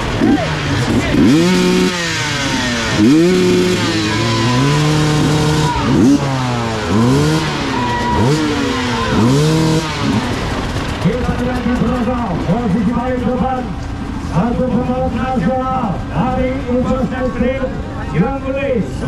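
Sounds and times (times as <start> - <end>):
motorcycle engines revving: 0.0 - 19.0.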